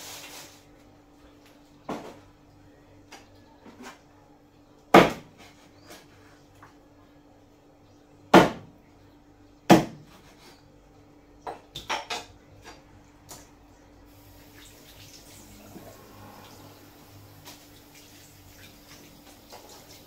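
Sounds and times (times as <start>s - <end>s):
knife chopping on wooden board: 9.7s - 10.3s.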